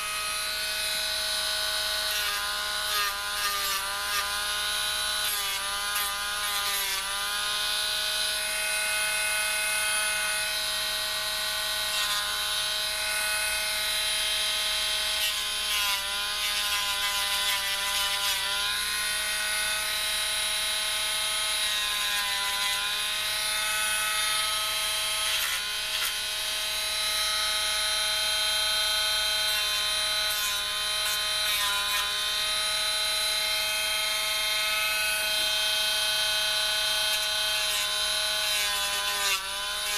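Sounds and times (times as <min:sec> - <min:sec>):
rotary tool whining: 0:21.6 - 0:39.9.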